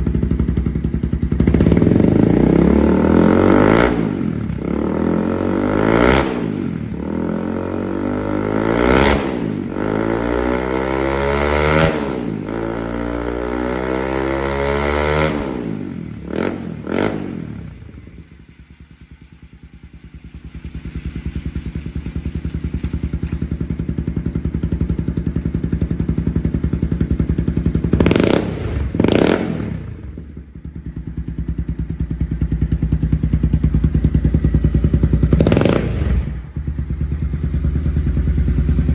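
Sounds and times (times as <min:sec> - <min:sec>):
motorcycle engine idling: 0:00.0 - 0:03.4, 0:15.6 - 0:38.9
motorcycle engine revving: 0:00.0 - 0:38.9.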